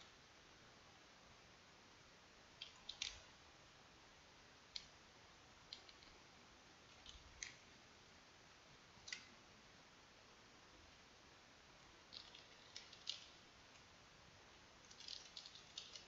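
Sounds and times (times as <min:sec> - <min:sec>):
faint hiss: 0:00.0 - 0:16.0
mouse and keyboard clicks: 0:02.6 - 0:03.2, 0:12.1 - 0:13.4, 0:14.9 - 0:16.0.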